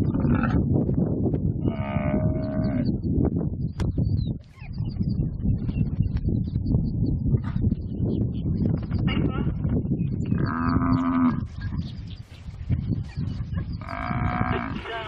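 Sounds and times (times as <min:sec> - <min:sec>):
buffalo bellowing in distress: 0:13.8 - 0:14.9.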